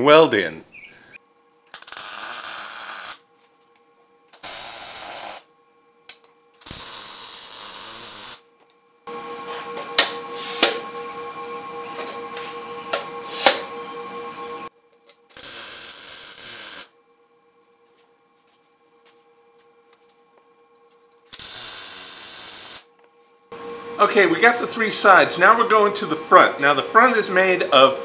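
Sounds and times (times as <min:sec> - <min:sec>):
welding arc crackling: 0:01.7 - 0:03.3, 0:04.3 - 0:05.5, 0:06.2 - 0:08.5, 0:15.2 - 0:17.0, 0:21.3 - 0:22.9.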